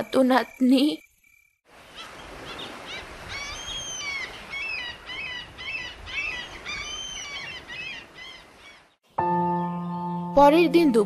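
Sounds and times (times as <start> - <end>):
sea waves washing: 1.7 - 8.6
birds chirping: 1.8 - 10.2.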